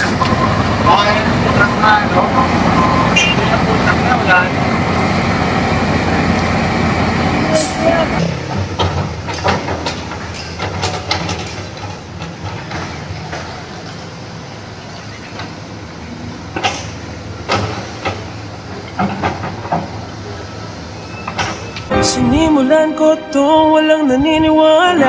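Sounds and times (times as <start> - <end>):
diesel engine running: 0.0 - 14.8.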